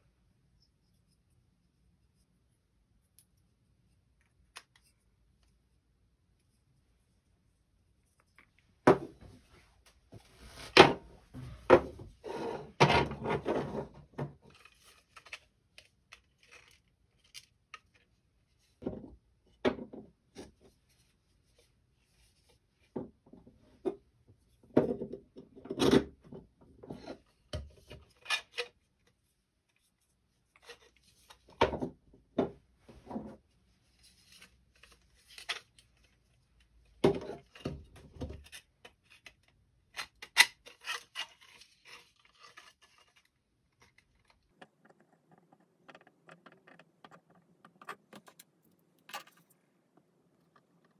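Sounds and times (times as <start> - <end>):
plastic parts clacking on board: 37.0 - 50.9.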